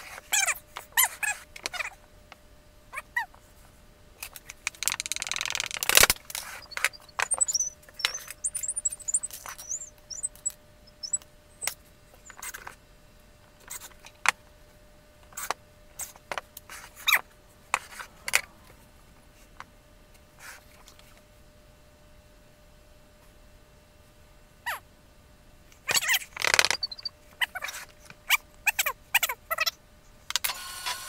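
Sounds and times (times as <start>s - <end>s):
wooden parts clicking and scraping: 4.2s - 11.7s, 26.4s - 27.1s
short high squeaks: 4.8s - 12.6s, 25.9s - 29.3s.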